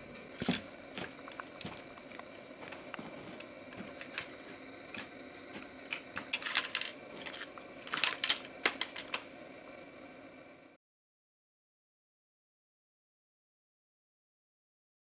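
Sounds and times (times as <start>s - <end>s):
gun metallic clicks and rattles: 6.3s - 9.2s.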